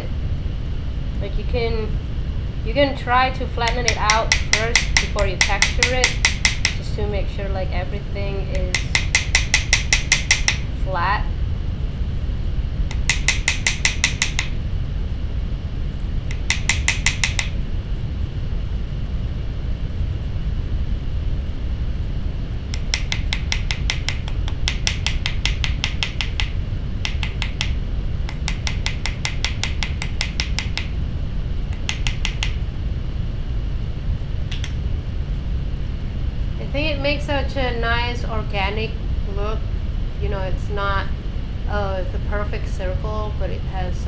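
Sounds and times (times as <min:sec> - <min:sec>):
hammer tapping metal rivet: 0:03.6 - 0:06.8, 0:08.5 - 0:10.7, 0:12.9 - 0:14.6, 0:16.3 - 0:17.6, 0:22.8 - 0:30.9, 0:31.8 - 0:32.6, 0:34.5 - 0:34.8.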